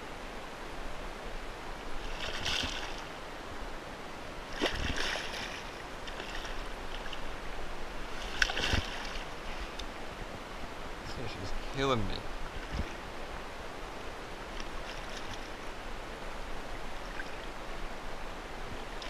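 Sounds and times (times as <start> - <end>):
fish splashing in water: 2.0 - 3.1, 4.5 - 7.2, 8.2 - 9.4
dull thump against hull: 8.2 - 9.2.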